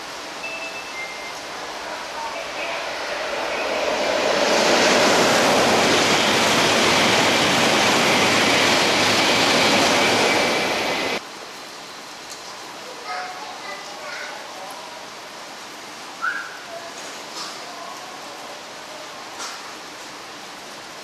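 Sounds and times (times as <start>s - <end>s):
high-speed train rushing past: 0.0s - 11.2s.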